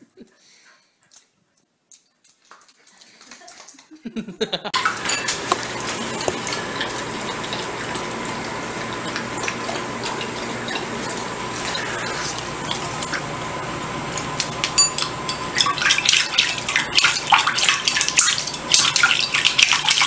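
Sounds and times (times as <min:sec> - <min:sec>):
bowl clinking on tile floor: 0:04.8 - 0:07.7, 0:14.5 - 0:16.1
dog lapping water: 0:04.8 - 0:20.0.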